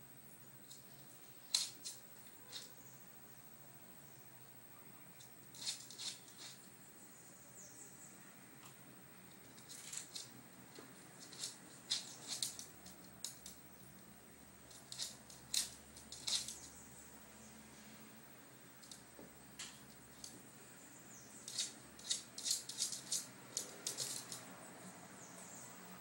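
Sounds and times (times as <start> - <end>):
dog claws clicking on hard floor: 11.2 - 13.6, 14.7 - 16.7, 21.5 - 24.5.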